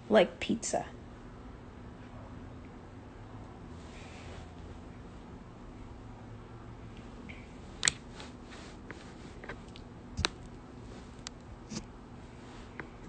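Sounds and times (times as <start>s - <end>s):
low steady room hum: 0.0s - 13.0s.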